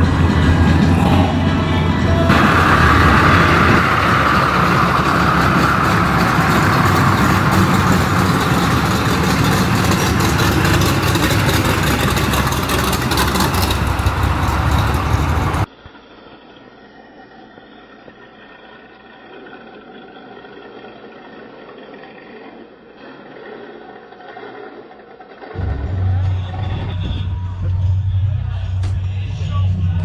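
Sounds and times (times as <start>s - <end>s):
pickup truck engine driving past: 0.0s - 15.7s.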